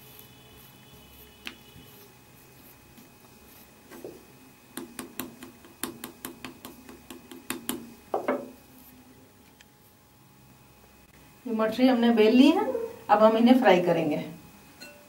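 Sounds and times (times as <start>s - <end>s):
fork tapping dough on marble: 4.0s - 8.5s.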